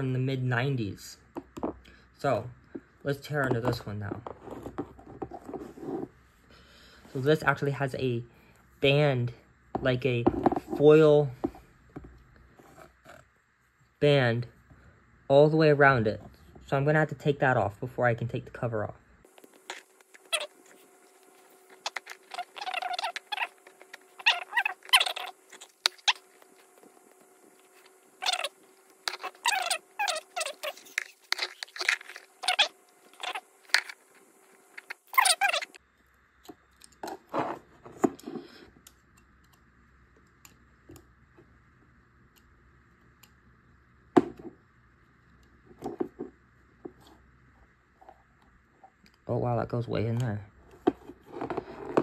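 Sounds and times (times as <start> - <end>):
foil tape scratching and crinkling: 19.3 - 35.8.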